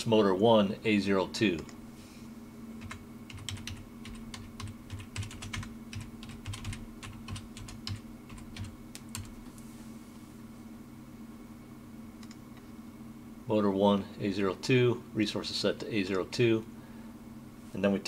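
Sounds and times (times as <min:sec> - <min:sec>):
steady low hum: 0:00.0 - 0:18.0
typing on computer keyboard: 0:02.8 - 0:09.3.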